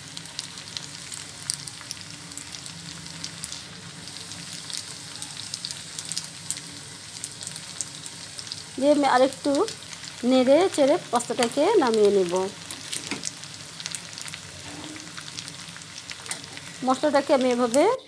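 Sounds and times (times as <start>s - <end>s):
food sizzling in a pan: 0.0s - 18.0s
crackles and pops: 9.5s - 18.0s.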